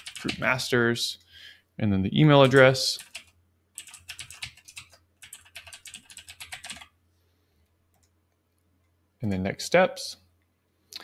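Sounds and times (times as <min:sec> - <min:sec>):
typing on keyboard: 0:00.0 - 0:00.4, 0:02.4 - 0:06.9.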